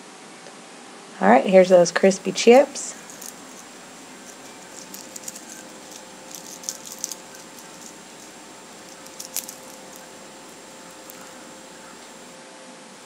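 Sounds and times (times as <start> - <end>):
faint steady hum: 0.0 - 13.0
kale chips crackling and rustling: 2.6 - 12.3
sharp crunches: 3.0 - 12.0.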